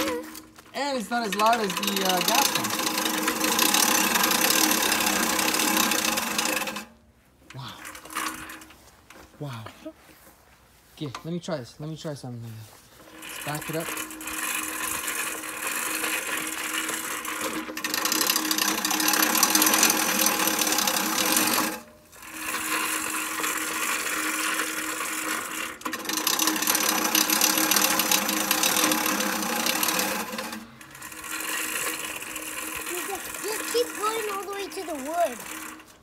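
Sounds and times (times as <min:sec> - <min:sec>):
reel mower whirring and chopping: 0:00.0 - 0:09.3, 0:12.8 - 0:36.0.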